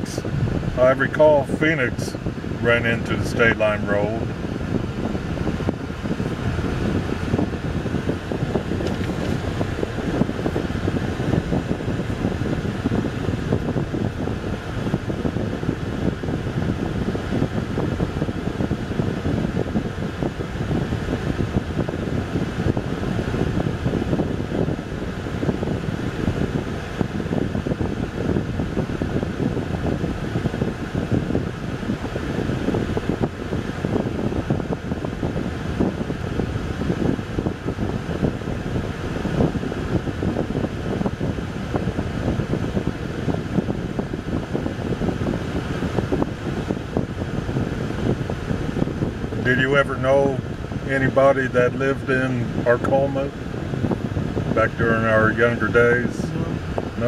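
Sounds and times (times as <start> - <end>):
car tyres and engine rumble: 0.0 - 57.0
even rush of cabin noise: 0.0 - 57.0.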